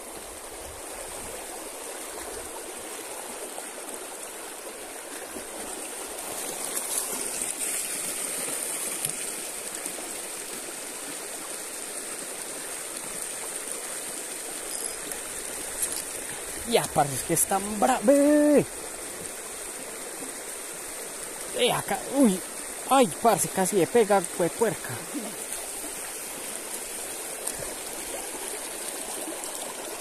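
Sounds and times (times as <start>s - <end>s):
stream water running: 0.0s - 30.0s.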